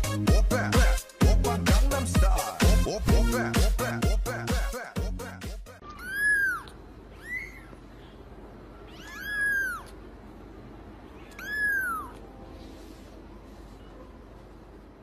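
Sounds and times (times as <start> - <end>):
kitten meowing: 5.8 - 7.8, 8.8 - 10.0, 11.1 - 12.3.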